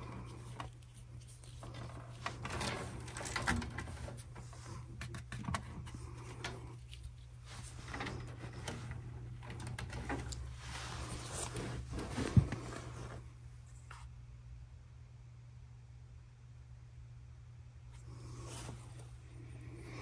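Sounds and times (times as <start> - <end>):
wiring rustling: 0.0 - 14.0
furnace humming: 0.0 - 20.0.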